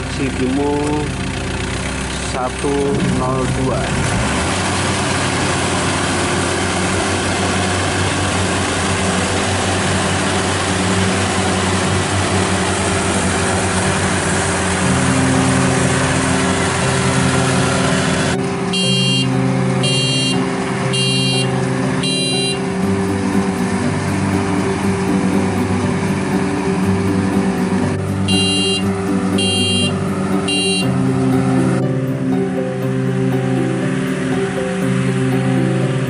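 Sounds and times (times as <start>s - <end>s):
harvester engine running: 0.0s - 36.0s
reversing alarm beeps: 18.8s - 22.6s, 28.3s - 30.8s.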